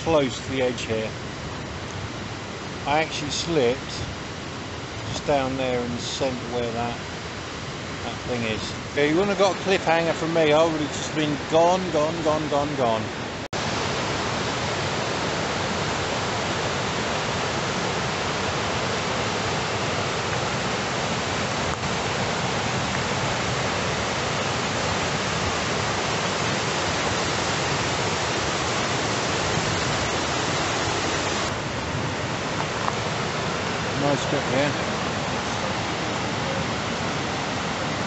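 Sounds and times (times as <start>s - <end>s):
waterfall and rapids rushing: 0.0s - 38.0s.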